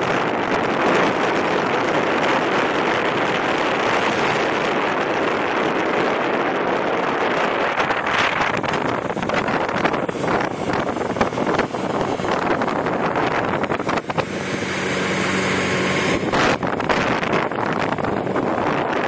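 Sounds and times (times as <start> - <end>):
motorboat engine: 0.0 - 19.0
water churning past hull: 0.0 - 19.0
wind rush on microphone: 0.0 - 19.0.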